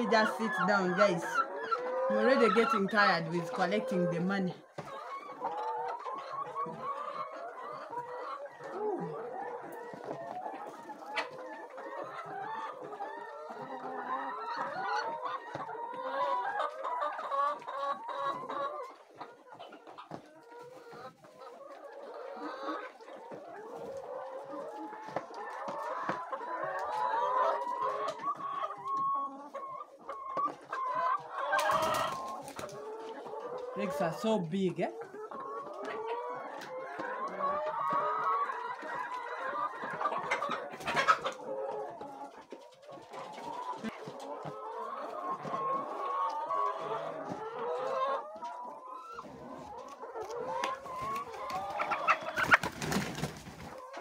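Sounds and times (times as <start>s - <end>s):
hens clucking: 0.0s - 54.0s.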